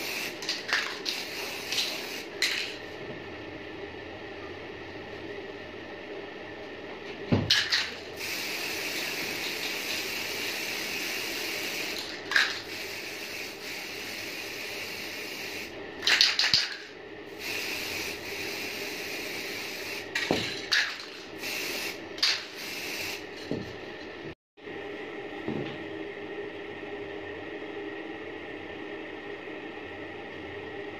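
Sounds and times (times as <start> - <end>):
spray paint can hissing: 0.0 - 2.7, 7.5 - 16.8, 17.4 - 23.4.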